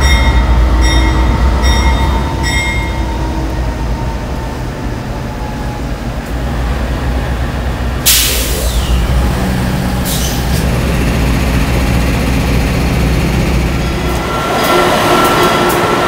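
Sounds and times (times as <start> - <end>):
diesel locomotive idling: 0.0 - 16.0
compressed air hissing: 8.0 - 9.4, 10.0 - 10.6.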